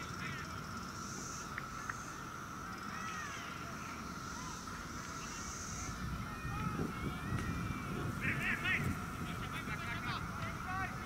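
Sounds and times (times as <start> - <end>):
birds chirping: 0.0 - 11.0.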